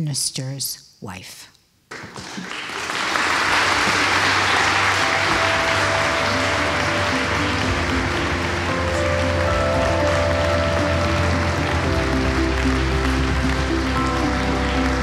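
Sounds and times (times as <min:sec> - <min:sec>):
audience applauding: 0:01.9 - 0:15.0
music playing: 0:03.2 - 0:15.0.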